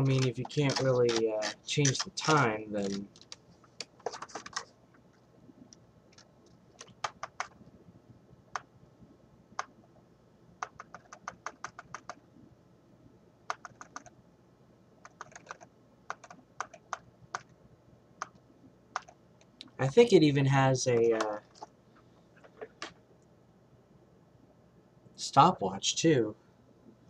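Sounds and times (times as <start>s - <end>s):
typing on a computer keyboard: 0.0s - 4.7s, 6.1s - 7.6s, 10.6s - 12.2s, 13.5s - 14.2s, 15.0s - 17.5s, 18.2s - 19.2s.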